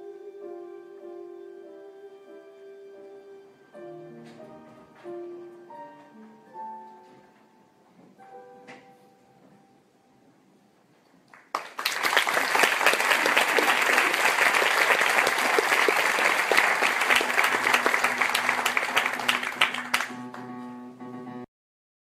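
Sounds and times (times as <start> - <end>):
faint song accompaniment: 0.0 - 11.0, 17.0 - 21.5
audience applause: 11.3 - 20.5.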